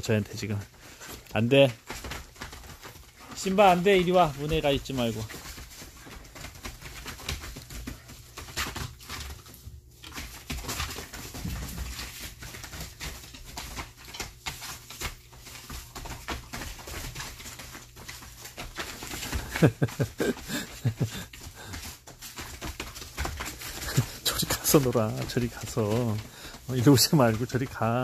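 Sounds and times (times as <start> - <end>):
paws scrabbling on plastic tarp: 0.0 - 28.0
dogs growling: 20.2 - 21.7.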